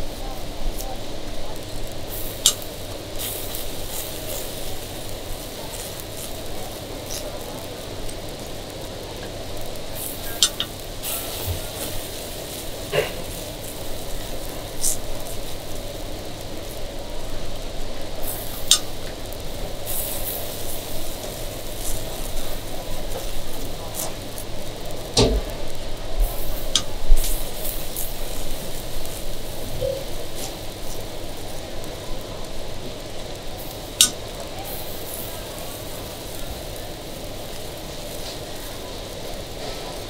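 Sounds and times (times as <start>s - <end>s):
batter sizzling: 0.0s - 40.0s.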